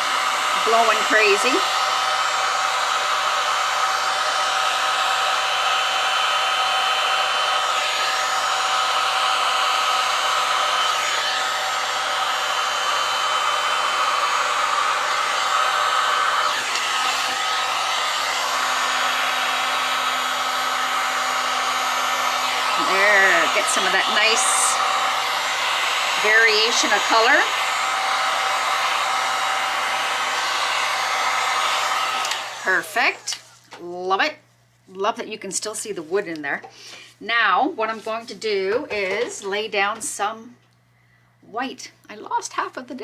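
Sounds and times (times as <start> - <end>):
heat gun blowing air: 0.0 - 33.6.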